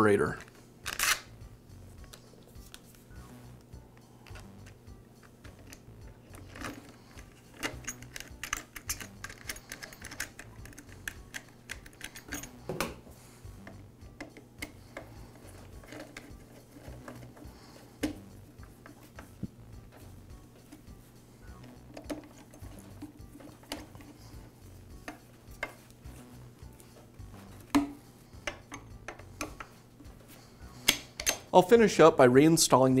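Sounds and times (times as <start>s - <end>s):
plastic parts clicking and tapping: 4.2s - 13.0s, 13.6s - 20.0s, 21.6s - 24.3s, 25.0s - 26.0s, 27.5s - 29.8s, 30.8s - 31.6s.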